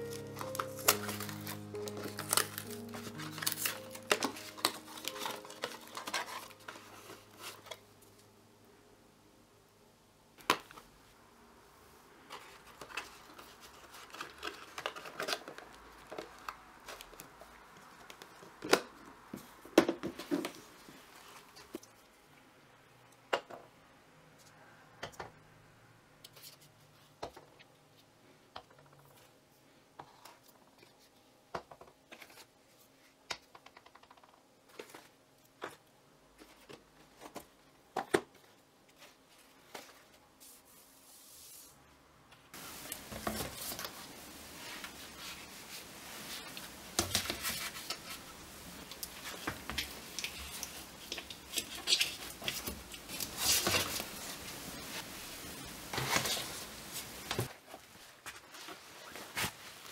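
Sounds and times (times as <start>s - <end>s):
bottles rustling in plastic basket: 0.0s - 7.7s, 49.1s - 59.9s
steady hiss: 42.5s - 51.1s.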